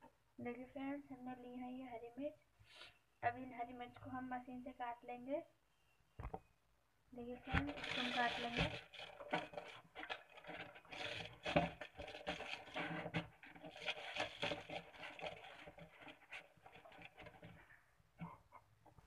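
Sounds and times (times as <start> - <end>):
plastic vegetable chopper rattling: 7.5 - 17.7.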